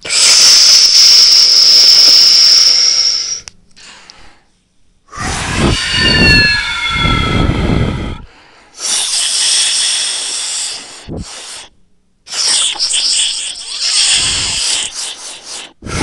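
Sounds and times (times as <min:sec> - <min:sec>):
person breathing loudly: 0:00.0 - 0:06.1, 0:07.4 - 0:11.7, 0:13.7 - 0:16.0
faint falling whistle: 0:05.6 - 0:08.2.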